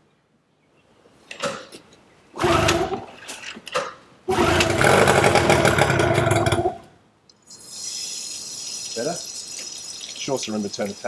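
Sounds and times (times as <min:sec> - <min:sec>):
outboard motor cranking: 0:02.4 - 0:03.0, 0:04.3 - 0:06.8.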